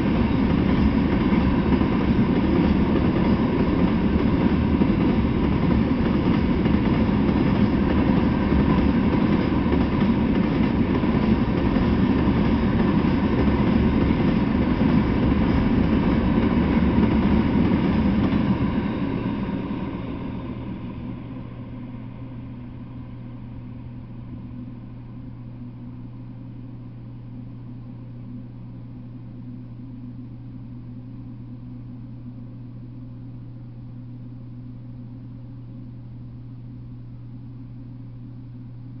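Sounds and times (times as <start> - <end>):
freight train rumble: 0.0 - 25.1
steady low hum: 0.0 - 39.0.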